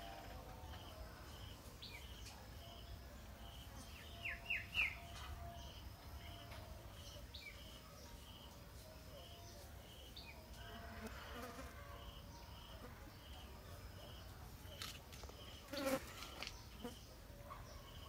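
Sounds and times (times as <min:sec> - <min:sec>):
insect buzzing past: 0:10.6 - 0:11.8, 0:15.6 - 0:17.0.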